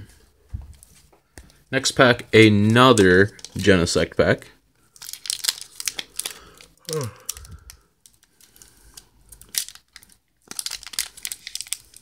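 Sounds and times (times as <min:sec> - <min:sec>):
foil wrapper crinkling: 0:02.6 - 0:03.7, 0:04.8 - 0:12.0.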